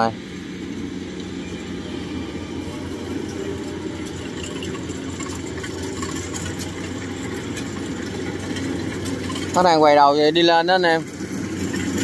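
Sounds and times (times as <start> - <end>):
combine harvester engine droning: 0.0 - 12.0
faint rattles and ticks: 3.2 - 12.0.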